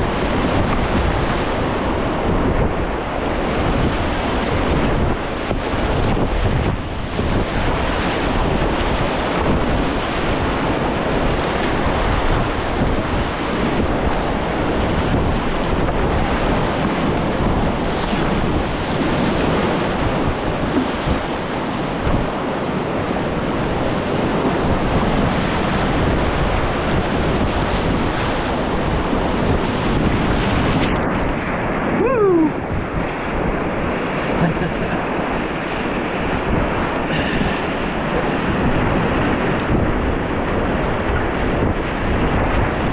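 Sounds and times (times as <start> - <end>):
wind buffeting microphone: 0.0 - 42.9
whitewater rapids rushing: 31.8 - 41.2.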